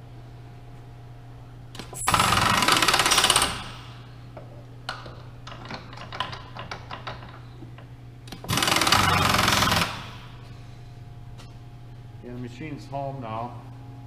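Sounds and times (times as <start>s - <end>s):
pneumatic drawbar rattling: 8.4s - 10.4s.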